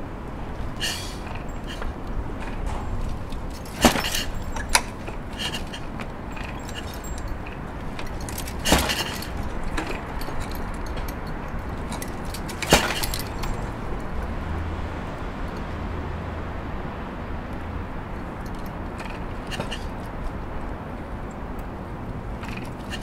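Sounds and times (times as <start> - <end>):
kick-start metallic clanks: 0.8 - 14.2, 18.4 - 20.1, 22.4 - 23.0.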